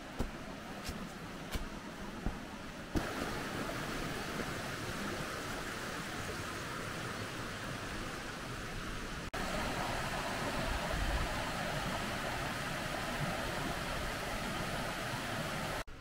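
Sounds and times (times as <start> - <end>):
footsteps on stone steps: 0.0 - 3.2
river running over rocks: 0.0 - 15.8.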